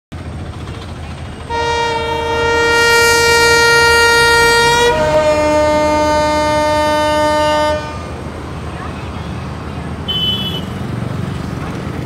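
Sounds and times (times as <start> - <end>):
locomotive air horn blast: 1.5 - 8.2, 10.1 - 10.8.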